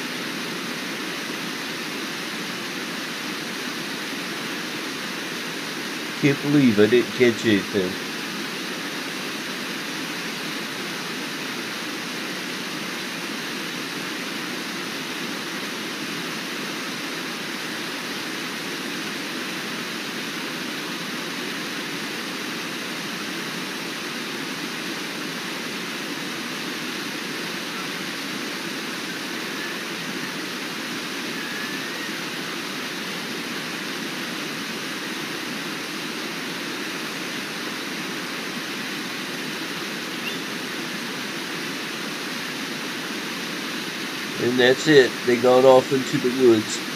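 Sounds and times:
river water rushing over rapids: 0:00.0 - 0:46.9.

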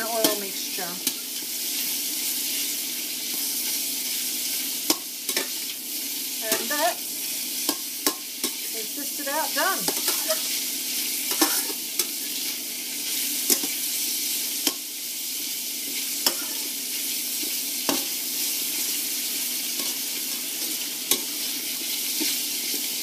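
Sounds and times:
food sizzling in a wok: 0:00.0 - 0:23.0
metal spatula scraping wok: 0:08.0 - 0:10.6, 0:15.9 - 0:16.8.

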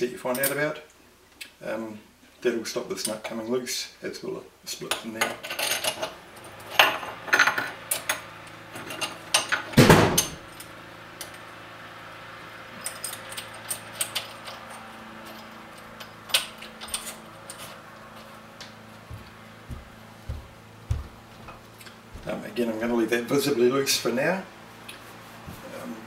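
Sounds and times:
small metal parts clinking: 0:05.2 - 0:09.7, 0:12.8 - 0:17.8.

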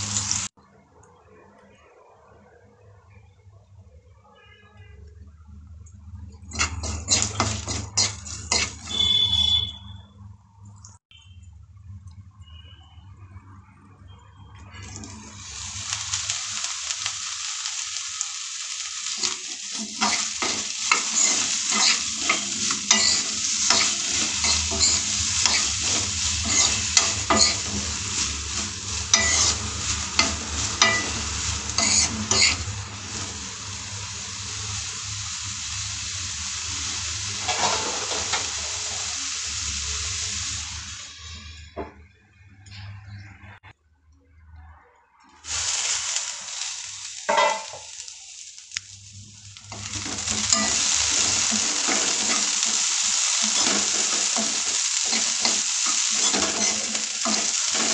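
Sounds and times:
vegetables sizzling in oil: 0:00.0 - 0:00.5, 0:05.9 - 0:09.7, 0:14.6 - 0:41.7, 0:45.4 - 0:57.9
utensil scraping a pan: 0:06.5 - 0:09.2, 0:19.2 - 0:32.8, 0:37.4 - 0:38.4
lid going on a pan: 0:47.3 - 0:47.9.

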